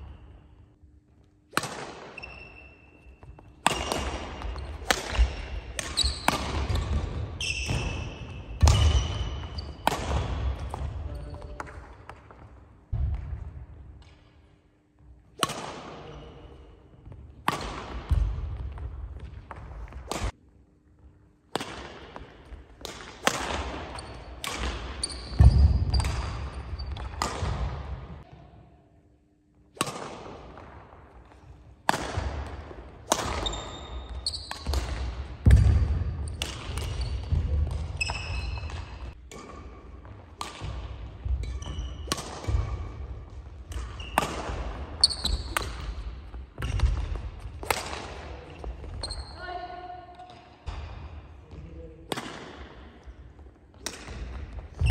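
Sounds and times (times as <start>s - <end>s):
rackets hitting shuttlecock: 1.5s - 14.3s, 15.3s - 16.2s, 17.0s - 20.4s, 21.5s - 28.4s, 29.8s - 49.1s, 52.1s - 54.9s
shoes squeaking on wooden court: 2.0s - 11.7s, 23.9s - 27.3s, 33.2s - 35.0s, 36.2s - 47.2s, 48.4s - 49.5s, 54.5s - 54.9s.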